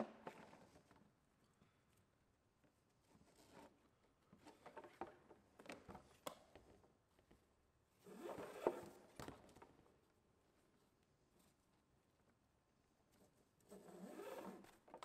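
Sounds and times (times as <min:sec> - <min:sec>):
rope rubbing through hands: 0:13.1 - 0:14.9.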